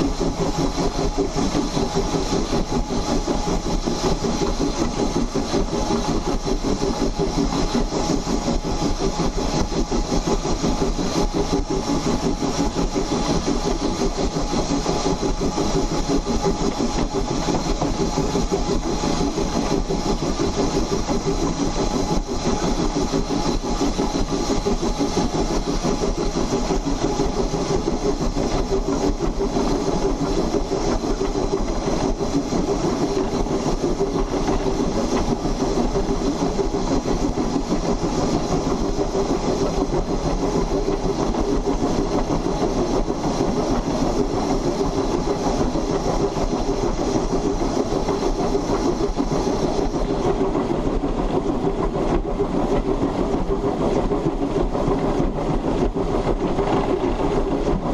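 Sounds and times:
steam locomotive running gear clatter: 0:00.0 - 0:57.9.

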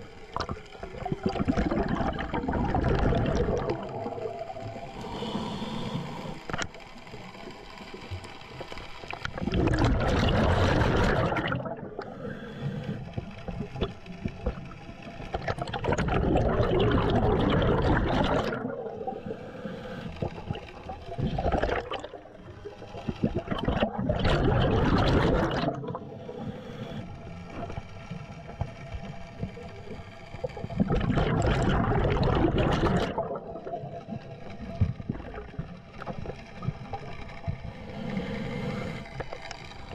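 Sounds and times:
underwater exhalation bubbles: 0:00.3 - 0:05.0, 0:09.1 - 0:12.2, 0:15.3 - 0:19.4, 0:20.2 - 0:27.0, 0:29.4 - 0:37.6
quiet regulator hiss: 0:03.7 - 0:09.4, 0:11.9 - 0:15.5, 0:18.6 - 0:21.5, 0:25.9 - 0:31.1, 0:33.4 - 0:39.9.

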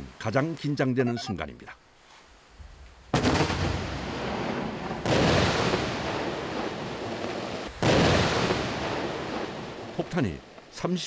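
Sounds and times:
explosion blast: 0:03.1 - 0:09.8.

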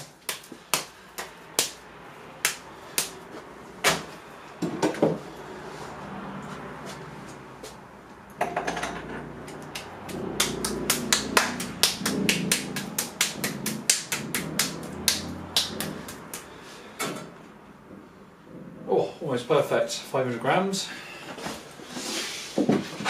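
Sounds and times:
hands slapping clay: 0:00.0 - 0:01.8, 0:02.4 - 0:03.2, 0:09.7 - 0:16.6.

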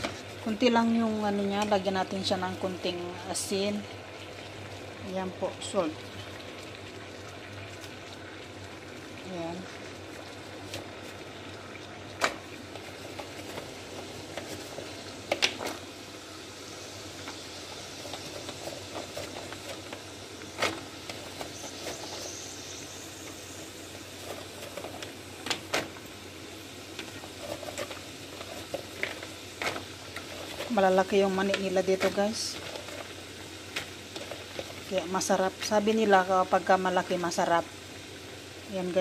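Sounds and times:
water boiling in a pan: 0:00.0 - 0:39.0.

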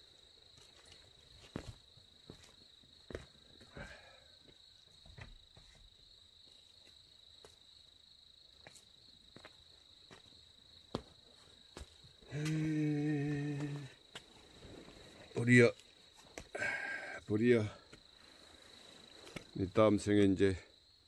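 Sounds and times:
crickets trilling: 0:00.0 - 0:21.0
man humming a low note: 0:12.3 - 0:14.0.

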